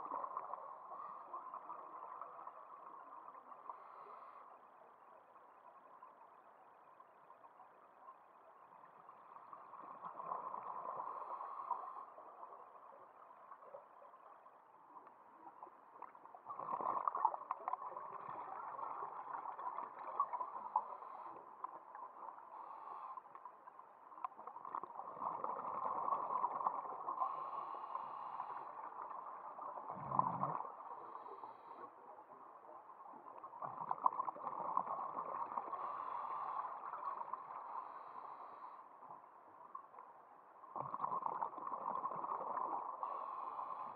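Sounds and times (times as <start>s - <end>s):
regulator bubbles gurgling: 28.9s - 31.5s, 40.7s - 43.4s.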